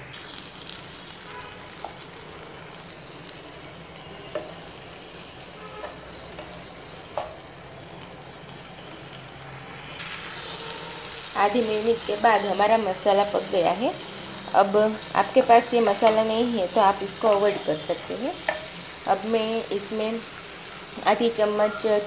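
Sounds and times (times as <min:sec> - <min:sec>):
spices sizzling in oil: 0:00.0 - 0:22.0
spatula tapping and scraping pan: 0:04.3 - 0:04.6, 0:05.8 - 0:07.4, 0:18.4 - 0:18.8.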